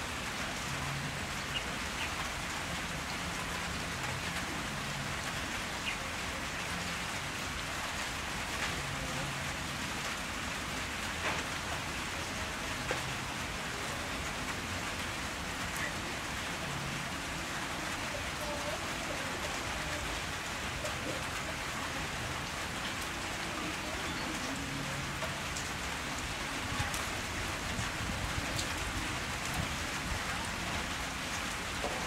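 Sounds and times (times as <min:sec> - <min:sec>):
rain-like hiss: 0:00.0 - 0:32.0.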